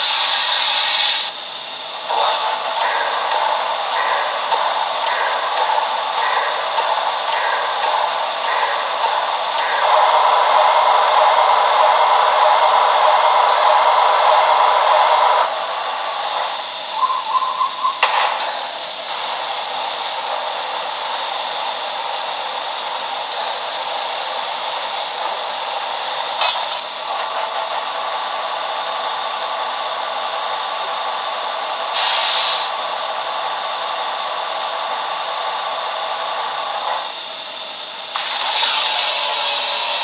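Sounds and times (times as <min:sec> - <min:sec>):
steady mechanical hum: 0:00.0 - 0:40.0
rushing hiss from small speaker: 0:32.0 - 0:32.8, 0:38.2 - 0:40.0.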